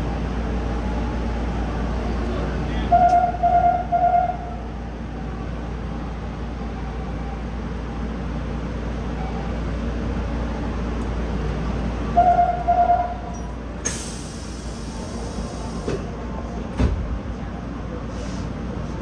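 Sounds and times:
train low hum: 0.0 - 19.0
air hissing: 13.8 - 16.0
thump: 16.8 - 17.1.

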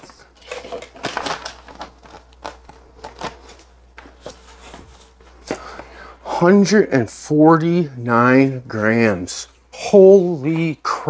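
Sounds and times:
plastic bag crinkling: 0.0 - 6.0.

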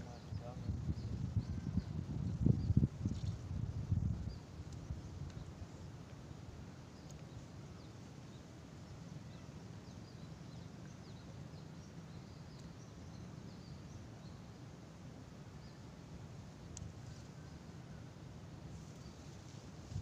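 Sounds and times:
faint high bird chirps: 0.0 - 2.0
wind rumble on microphone: 0.0 - 5.7, 19.5 - 20.0.

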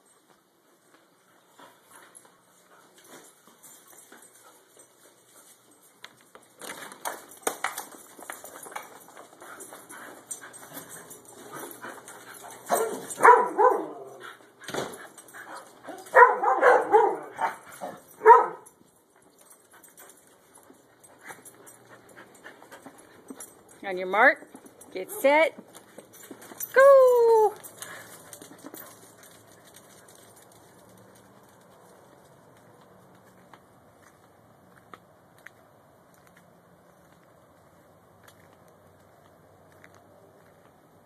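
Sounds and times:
dogs scuffling: 0.9 - 34.1
dogs barking: 12.6 - 14.2, 15.9 - 18.7.

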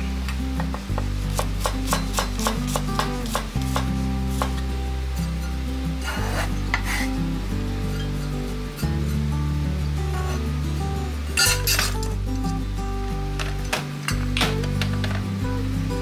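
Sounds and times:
knife chopping on cutting board: 1.0 - 4.6
knife scraping cutting board: 6.0 - 7.1.

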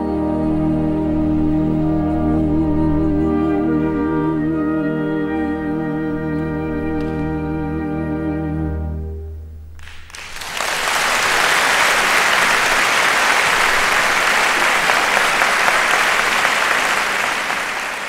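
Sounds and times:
audience applauding: 9.8 - 18.0.

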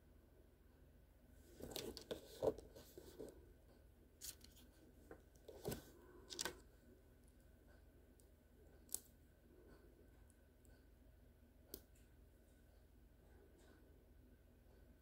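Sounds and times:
rustling and crinkling: 1.4 - 3.5, 4.2 - 6.7.

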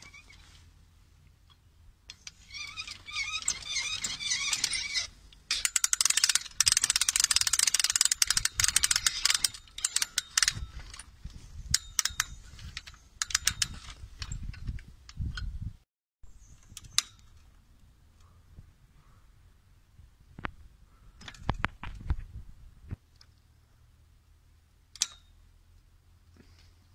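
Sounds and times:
ratchet mechanism clicking: 1.5 - 11.1, 11.7 - 15.4.

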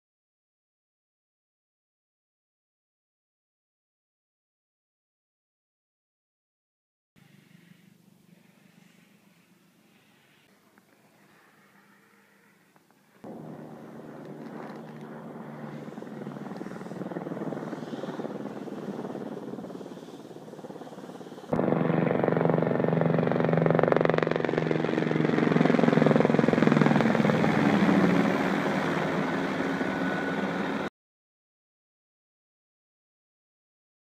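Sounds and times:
helicopter turbine and rotor chop: 13.2 - 30.9.

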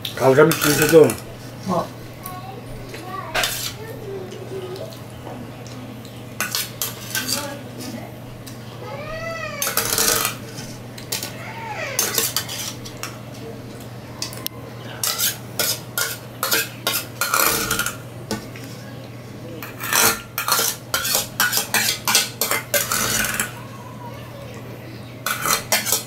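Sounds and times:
spoon scraping metal bowl: 0.2 - 1.3, 3.4 - 3.8, 6.4 - 7.6, 9.6 - 11.4, 12.0 - 13.1, 15.0 - 18.0, 19.6 - 23.6, 25.2 - 26.0.

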